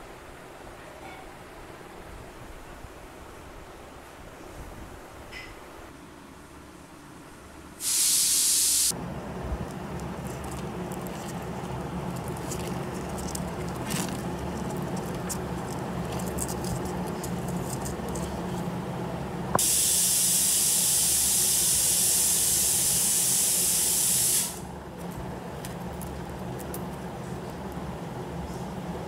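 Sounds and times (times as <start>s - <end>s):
loud even hiss: 7.8s - 9.0s, 19.5s - 24.7s
steady low hum: 8.5s - 19.6s, 24.5s - 29.0s.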